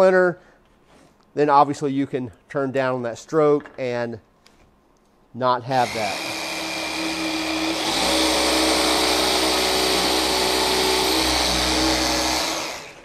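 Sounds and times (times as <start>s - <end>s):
jigsaw sawing through wood: 5.8s - 13.0s.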